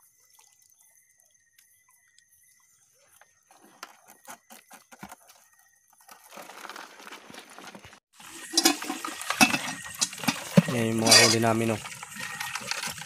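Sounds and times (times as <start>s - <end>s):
rustling scrape: 6.1s - 8.0s, 8.6s - 13.0s.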